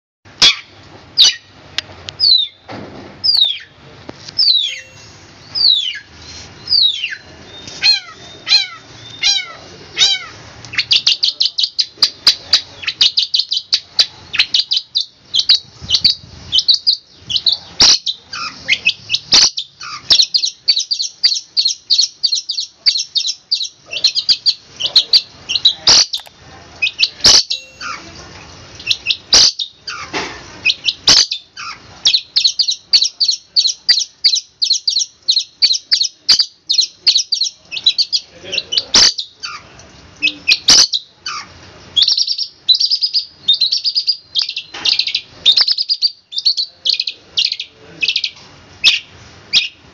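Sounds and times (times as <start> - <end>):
bird singing: 4.4 - 9.2, 27.0 - 28.1.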